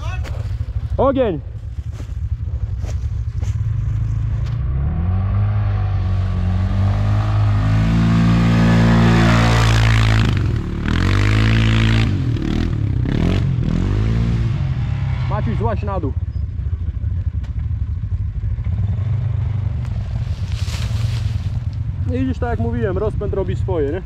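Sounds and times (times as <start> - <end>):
quad bike engine revving: 3.4 - 20.4.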